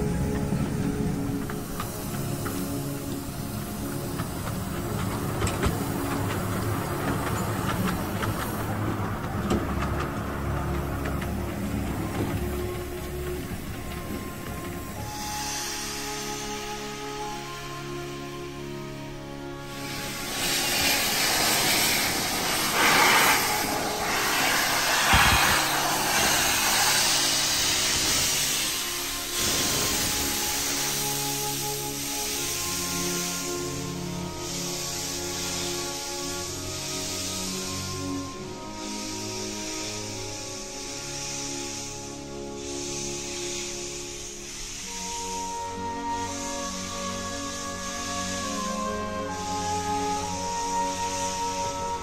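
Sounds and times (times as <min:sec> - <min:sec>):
rail clicks: 0:00.0 - 0:17.1, 0:18.6 - 0:33.5
steam hissing: 0:00.0 - 0:52.0
train wheels rumbling: 0:00.0 - 0:52.0.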